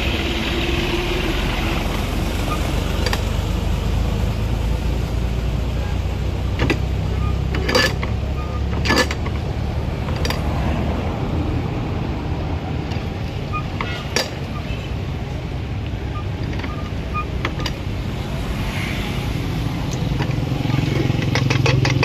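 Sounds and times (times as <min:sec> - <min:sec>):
road traffic rumble: 0:00.0 - 0:22.0
juice press metallic clanks: 0:06.5 - 0:10.5, 0:19.9 - 0:22.0.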